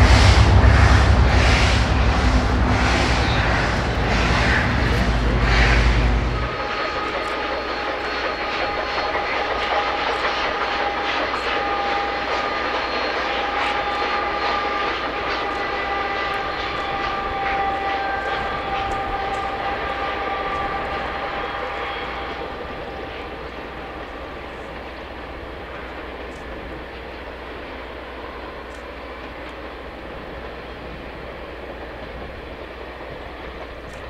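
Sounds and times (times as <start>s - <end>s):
steady high tones: 0.0s - 15.2s
steam train passing: 0.0s - 34.0s
faint clicks: 28.6s - 29.6s.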